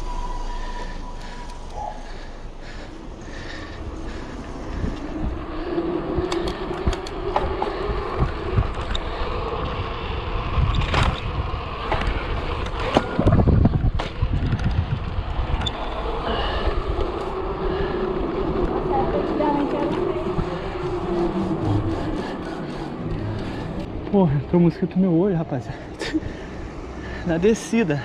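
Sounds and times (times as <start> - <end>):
loud low rumble: 0.0 - 12.5, 13.1 - 24.5
bike tyre roar: 0.0 - 24.8
wind on microphone: 3.6 - 23.9
bike rattling clicks: 6.2 - 9.8, 10.6 - 15.8.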